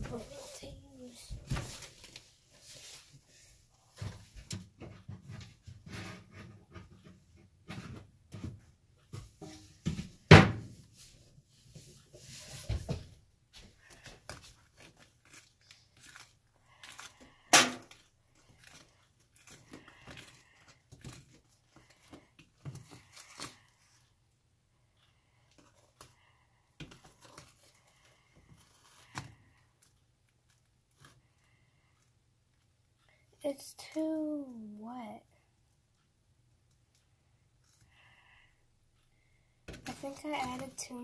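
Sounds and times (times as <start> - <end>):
utensil stirring slime: 13.6 - 24.0.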